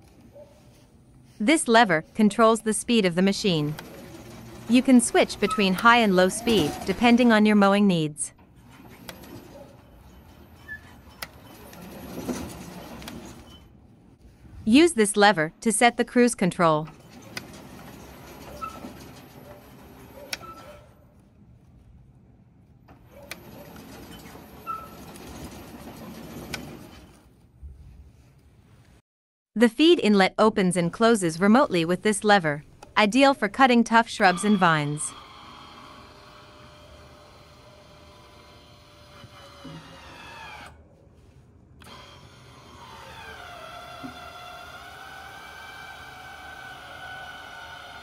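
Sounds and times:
electric mower drive whirring: 0:03.3 - 0:07.5, 0:08.4 - 0:13.4, 0:16.9 - 0:20.6, 0:23.0 - 0:27.2, 0:34.2 - 0:40.8, 0:41.8 - 0:48.0
motorised actuator whining: 0:03.6 - 0:07.3, 0:34.2 - 0:40.8, 0:41.8 - 0:48.0.

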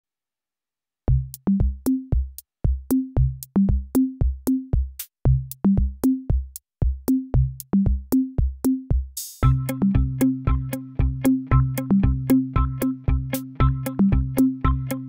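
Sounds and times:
drum beat with low notes: 0:01.1 - 0:15.0.

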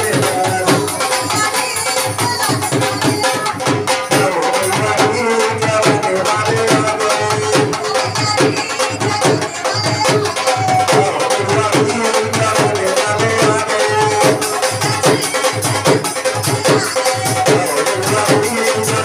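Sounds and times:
drum beating fast rhythm: 0:00.0 - 0:19.0.

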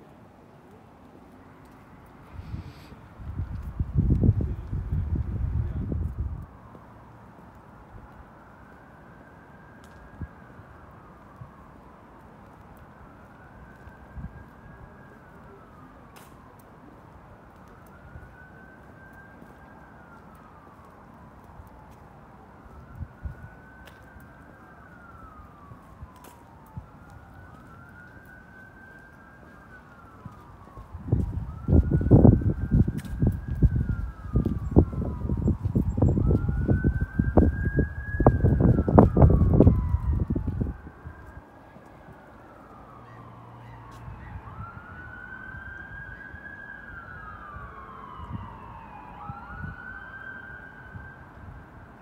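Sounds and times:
emergency siren wailing: 0:00.6 - 0:52.0
wind buffeting microphone: 0:02.3 - 0:06.7, 0:29.9 - 0:42.8, 0:44.0 - 0:50.3.

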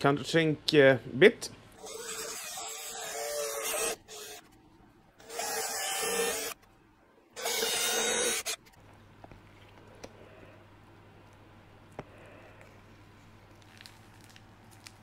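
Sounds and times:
cordless drill motor: 0:05.2 - 0:06.6, 0:07.4 - 0:08.6.

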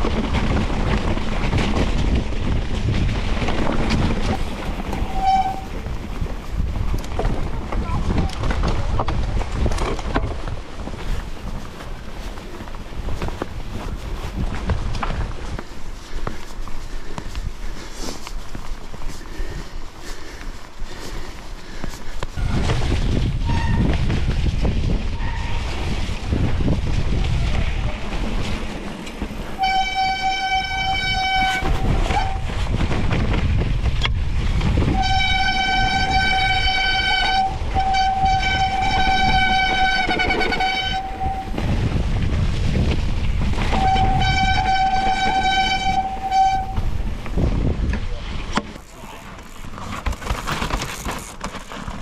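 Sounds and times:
wind buffeting microphone: 0:00.0 - 0:48.8
bike rattling over bumps: 0:00.0 - 0:52.0
bike tyres rumbling on dirt: 0:00.0 - 0:52.0
bike disc brake squealing: 0:04.2 - 0:05.8.

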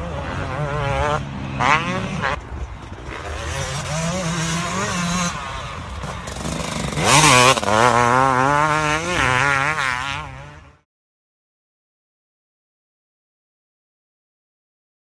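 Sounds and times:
dirt bike engine revving: 0:00.0 - 0:10.8.

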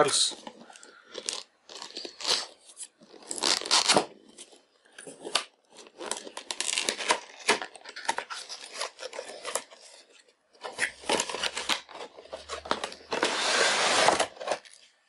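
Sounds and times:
cardboard box scraping and tearing: 0:11.0 - 0:14.7.

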